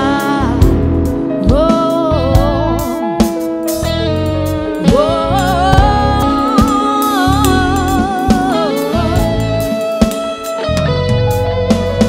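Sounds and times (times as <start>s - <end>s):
steady bass: 0.0s - 12.0s
wavering held melody line: 3.9s - 11.3s
sharp drum hits: 5.7s - 10.6s.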